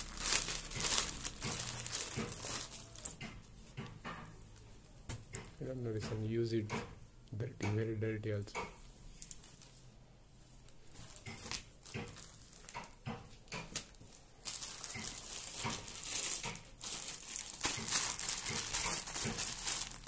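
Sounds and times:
plastic bag crinkling: 0:00.0 - 0:03.3, 0:11.0 - 0:20.0
cloth rustling: 0:00.0 - 0:03.8, 0:08.8 - 0:20.0.

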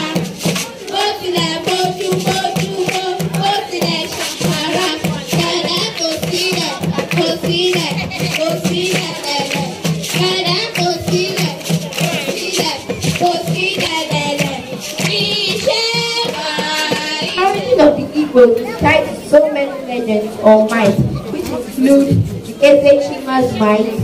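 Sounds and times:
children singing: 0:00.0 - 0:17.9
percussive beat: 0:00.0 - 0:19.1, 0:20.7 - 0:22.9.

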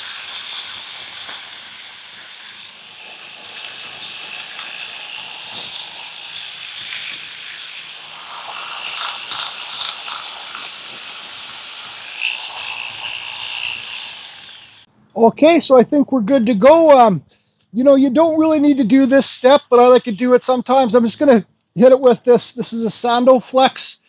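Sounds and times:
belt sander hissing on wood: 0:00.0 - 0:14.9.

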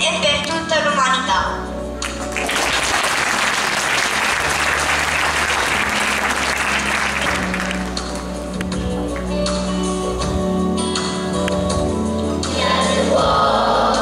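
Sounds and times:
quiet instrumental music: 0:00.0 - 0:14.0
audience applauding: 0:02.0 - 0:09.6.

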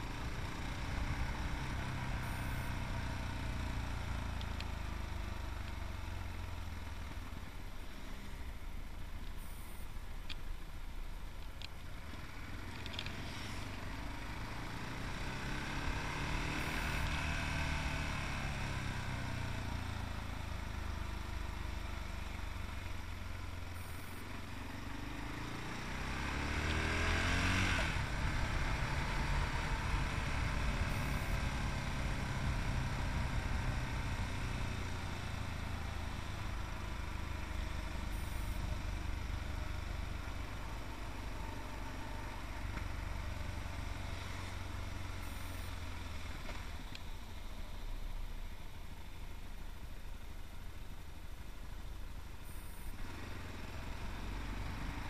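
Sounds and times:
motorcycle engine revving: 0:00.0 - 0:04.4, 0:12.2 - 0:23.0, 0:23.8 - 0:46.9, 0:52.4 - 0:55.0.

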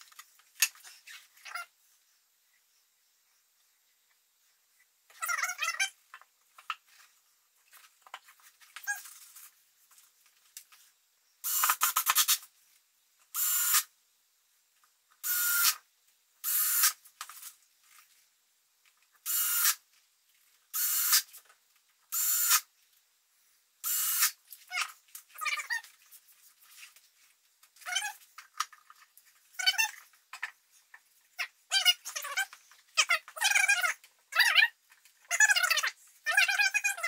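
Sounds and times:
cordless drill driving screws: 0:23.8 - 0:24.4.

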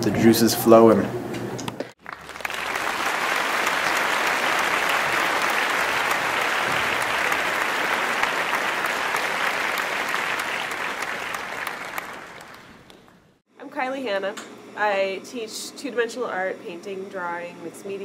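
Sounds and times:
people clapping: 0:02.0 - 0:13.4.

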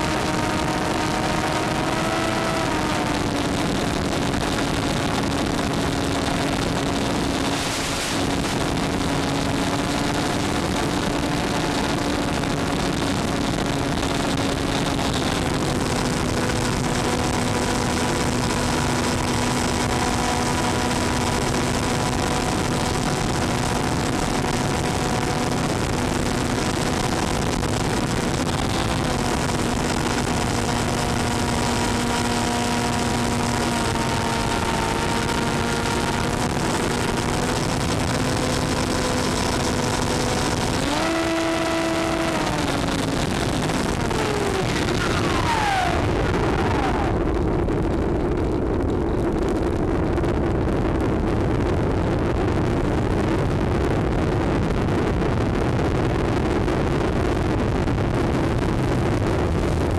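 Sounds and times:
electric motor and propeller hum: 0:00.0 - 0:46.6.

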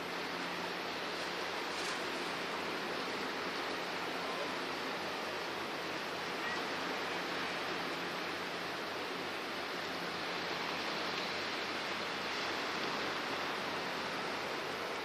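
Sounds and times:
steady rushing outdoor noise: 0:00.0 - 0:15.0.

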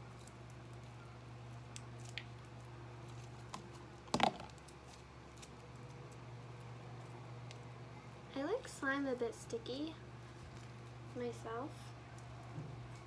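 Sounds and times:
plastic tub clunk: 0:04.1 - 0:04.5.

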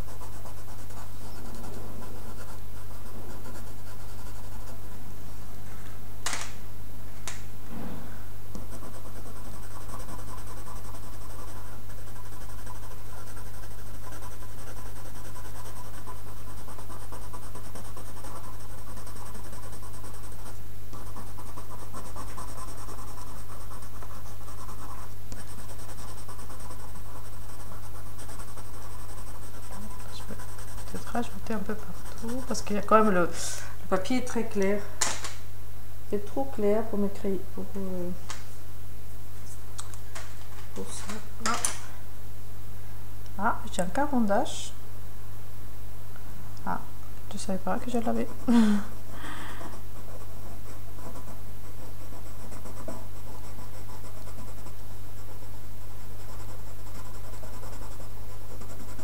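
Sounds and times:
pencil scratching on paper: 0:00.0 - 0:05.0, 0:08.6 - 0:33.3, 0:47.7 - 0:48.5, 0:49.6 - 0:59.0
steady low hum: 0:00.0 - 0:59.0.

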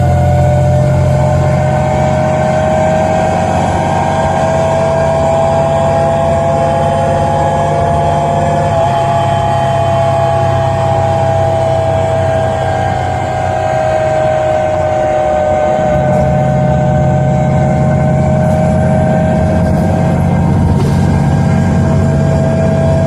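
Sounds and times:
bus engine drone with whine: 0:00.0 - 0:23.0.

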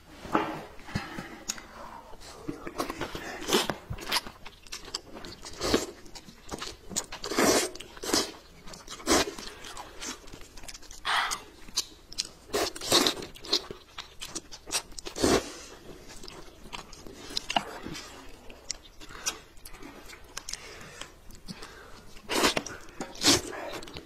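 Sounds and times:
crunching bites and chewing: 0:02.8 - 0:24.0.

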